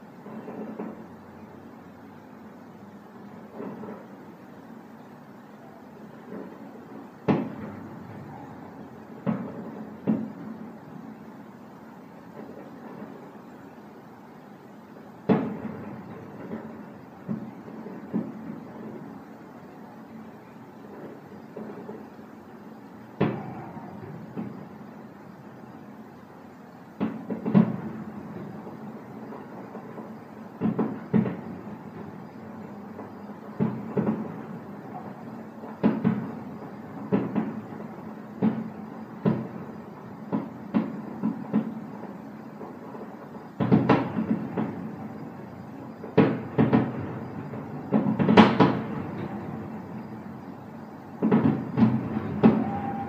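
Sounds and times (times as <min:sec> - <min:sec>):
distant fireworks bursting: 0:00.0 - 0:53.0.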